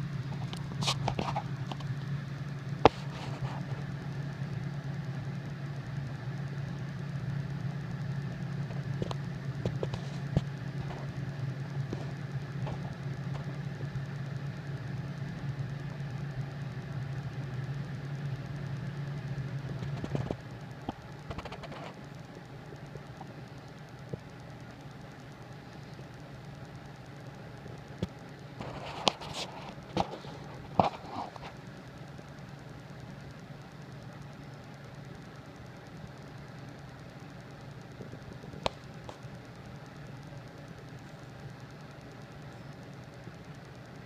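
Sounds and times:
low mechanical hum: 0:00.0 - 0:44.0
faint clicks: 0:00.2 - 0:44.0.

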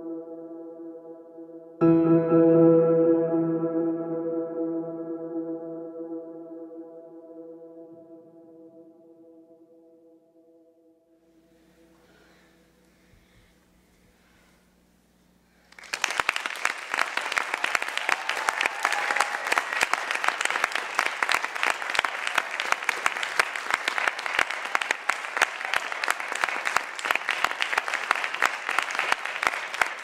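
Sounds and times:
audience applauding: 0:15.7 - 0:30.0.

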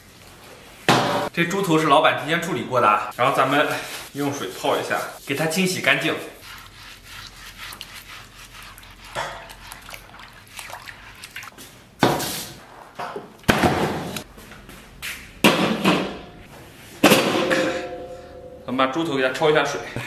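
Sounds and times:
hands rubbing and water sloshing: 0:03.2 - 0:12.5.

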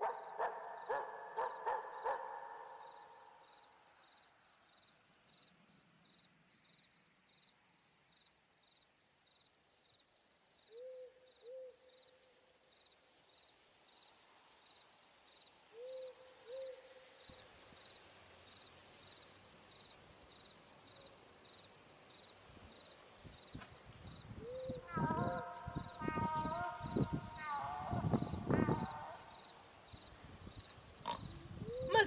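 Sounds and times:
crickets chirping: 0:00.0 - 0:32.0
owl hooting: 0:10.7 - 0:11.9, 0:15.7 - 0:17.1, 0:24.4 - 0:29.6.

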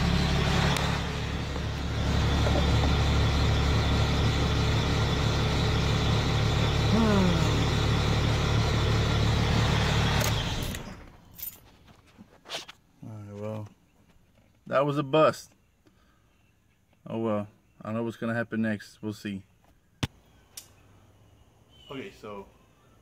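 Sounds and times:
diesel engine idling: 0:00.0 - 0:11.1.

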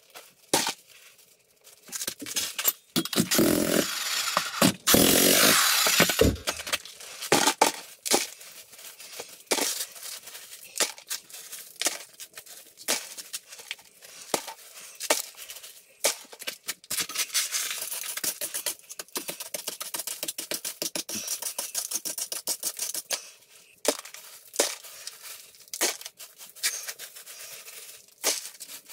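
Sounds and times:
jackhammer on concrete: 0:03.0 - 0:06.8
gravel scraped by hand: 0:03.2 - 0:07.3.

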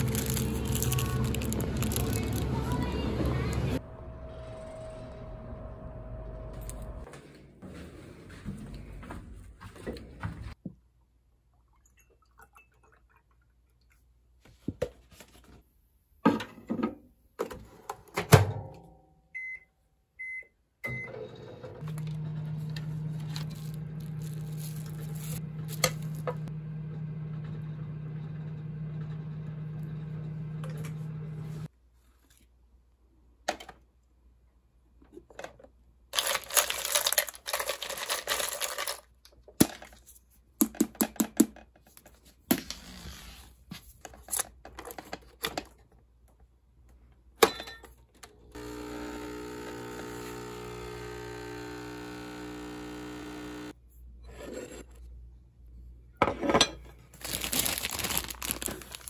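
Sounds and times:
coffee capsules rattling: 0:00.0 - 0:02.5
microwave oven humming: 0:00.0 - 0:07.0, 0:20.2 - 0:31.7, 0:48.4 - 0:53.8.

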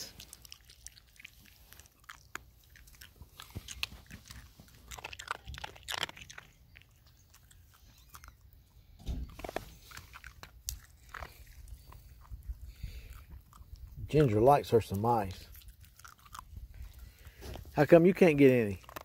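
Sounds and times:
dog crunching ice cubes: 0:00.0 - 0:19.0.

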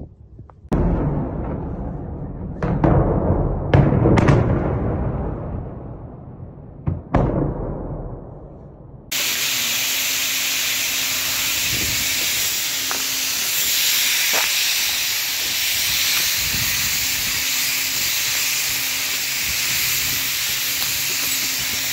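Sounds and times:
explosion rumbling: 0:00.7 - 0:09.4
loud steady hiss: 0:09.1 - 0:21.9.

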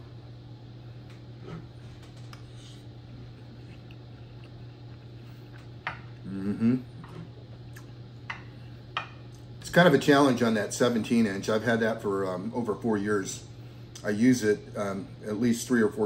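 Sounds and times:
low background hum: 0:00.0 - 0:16.0
short vocal sound: 0:06.2 - 0:07.0.

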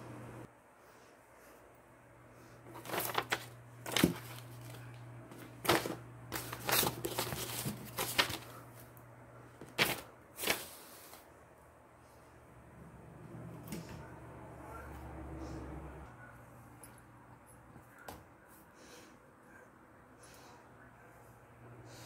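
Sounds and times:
steady low hum: 0:00.0 - 0:22.0
paper sheets rustling: 0:02.7 - 0:08.9, 0:09.6 - 0:11.3.

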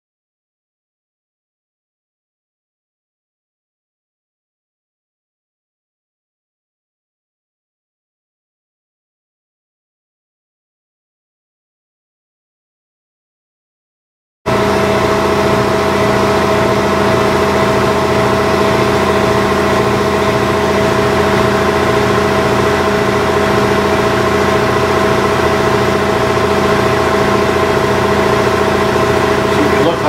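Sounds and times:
machine humming: 0:14.5 - 0:30.0.

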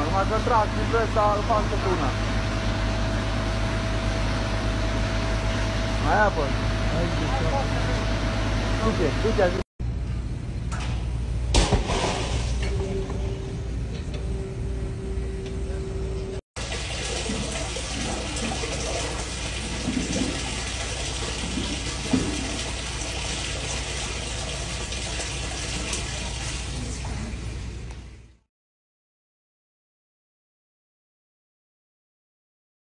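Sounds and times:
steady hum: 0:00.0 - 0:28.4
water gushing into well: 0:11.8 - 0:12.7, 0:16.6 - 0:27.7.

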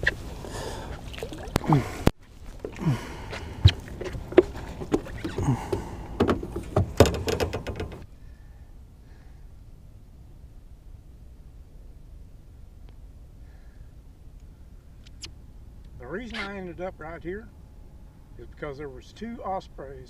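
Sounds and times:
faint steady background: 0:00.0 - 0:20.0
hollow knocks on boat deck: 0:03.6 - 0:08.0.

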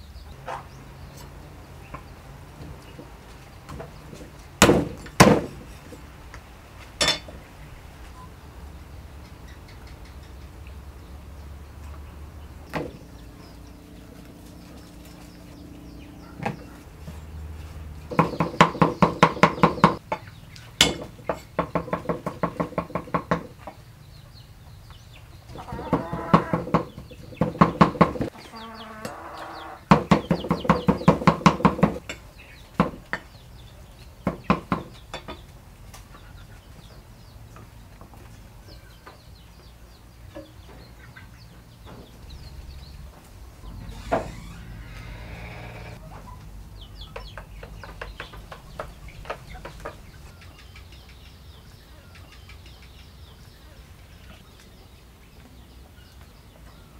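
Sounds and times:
cleaver chopping on wooden block: 0:04.6 - 0:05.6.

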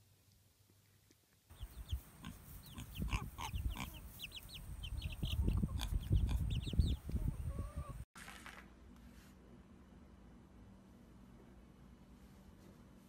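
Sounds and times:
baby chicks peeping: 0:01.5 - 0:08.0.

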